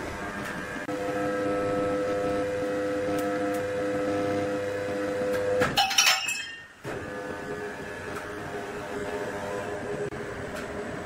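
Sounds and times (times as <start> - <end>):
sawmill machinery hum: 0.0 - 5.7.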